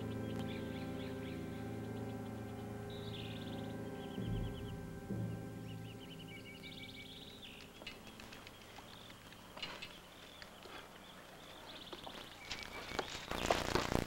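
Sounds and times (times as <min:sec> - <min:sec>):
bird chirping: 0:00.0 - 0:13.9.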